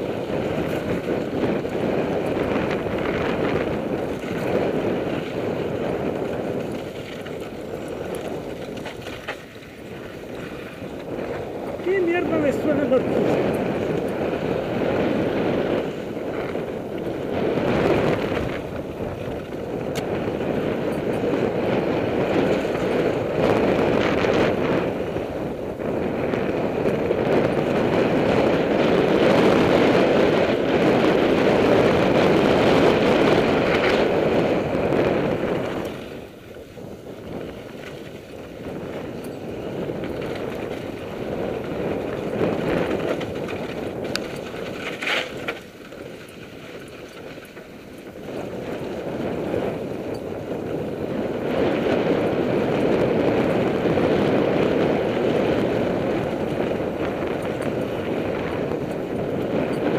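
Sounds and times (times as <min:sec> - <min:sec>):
bike tyres rolling over dirt: 0:00.0 - 0:59.9
wind buffeting microphone: 0:00.0 - 0:59.9.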